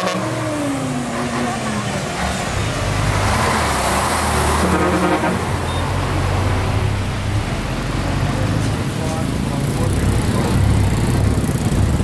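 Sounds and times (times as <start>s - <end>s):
road noise of passing traffic: 0.0s - 12.0s
vehicle engine running: 7.4s - 12.0s.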